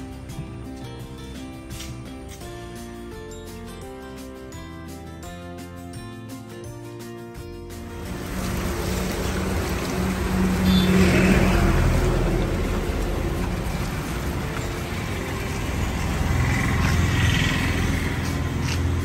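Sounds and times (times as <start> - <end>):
diesel car engine at low speed: 7.9 - 19.0.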